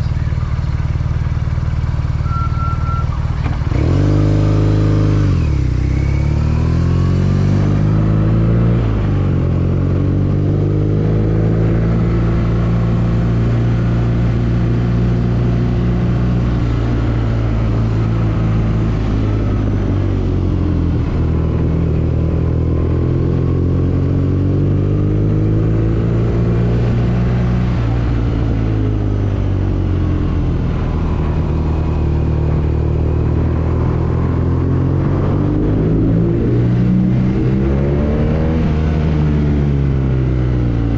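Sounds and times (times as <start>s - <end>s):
motorcycle engine running: 0.0s - 5.9s.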